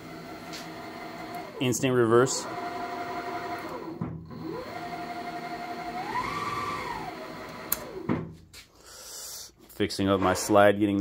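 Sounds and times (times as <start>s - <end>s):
lathe motor whining: 0.0s - 8.3s.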